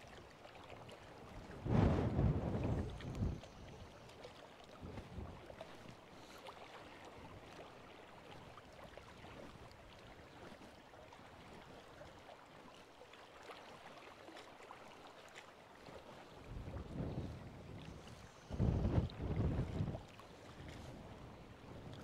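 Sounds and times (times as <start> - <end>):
faint wind: 0.0 - 12.8, 15.5 - 22.0
small waves lapping at shore: 0.0 - 22.0
light ticks: 3.0 - 3.6.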